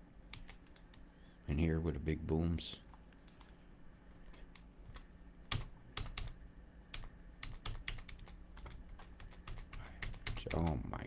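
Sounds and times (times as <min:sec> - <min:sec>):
computer keyboard keys clicking: 0:00.3 - 0:01.0, 0:04.3 - 0:10.8.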